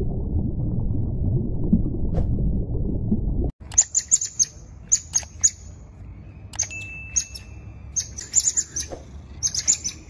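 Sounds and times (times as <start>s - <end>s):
high-pitched chirping calls: 3.7s - 10.0s.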